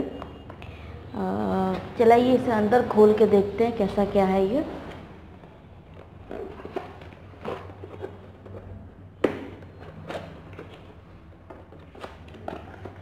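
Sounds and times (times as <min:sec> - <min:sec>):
cardboard rustling: 0:05.4 - 0:09.0.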